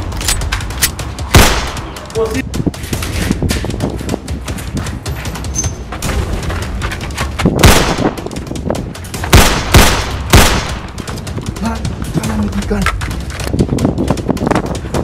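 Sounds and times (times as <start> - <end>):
pistol shots: 1.3 - 1.9, 7.6 - 8.3, 9.3 - 11.0.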